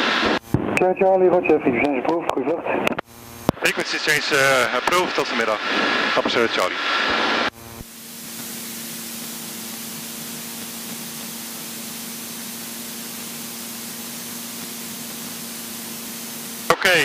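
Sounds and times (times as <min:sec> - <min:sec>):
faint aircraft engine: 0:00.0 - 0:17.0
intercom hiss with low hum: 0:00.0 - 0:17.0.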